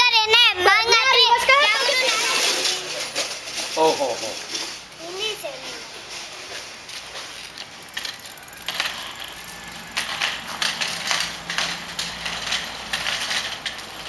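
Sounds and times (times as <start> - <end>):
bicycle rattling: 0.0 - 14.0
bicycle freewheel ticking: 6.9 - 14.0.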